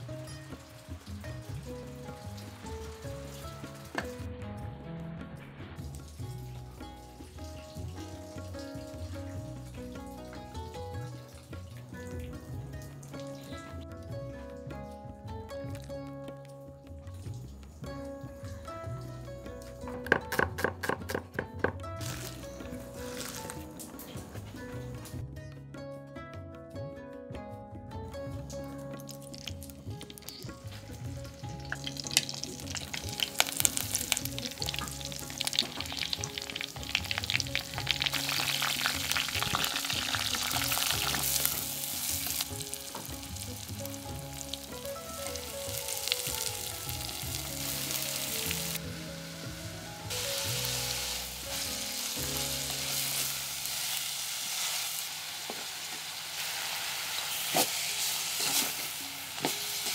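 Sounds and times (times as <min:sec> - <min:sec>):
vegetables sizzling in oil: 0:00.0 - 0:04.2, 0:22.0 - 0:24.7, 0:29.0 - 0:59.9
oil spattering crackles: 0:19.4 - 0:25.2, 0:28.6 - 0:59.9.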